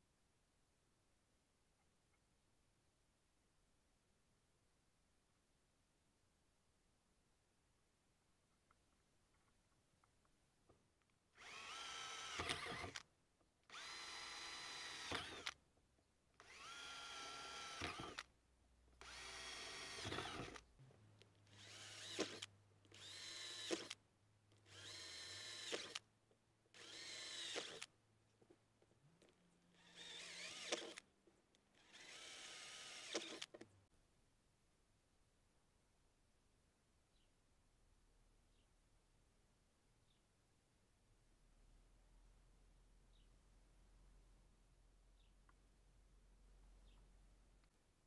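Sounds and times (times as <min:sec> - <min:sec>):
cordless drill whine: 0:11.4 - 0:13.0, 0:13.7 - 0:15.6, 0:16.4 - 0:18.3, 0:19.0 - 0:20.7, 0:21.5 - 0:24.0, 0:24.6 - 0:26.0, 0:26.8 - 0:27.9, 0:29.7 - 0:31.0, 0:31.8 - 0:33.6.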